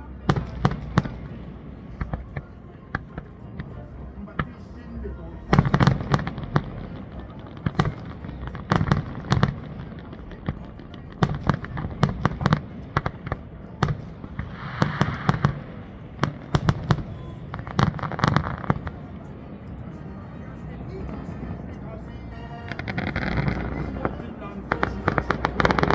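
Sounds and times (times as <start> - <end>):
fireworks hissing: 13.9 - 17.0.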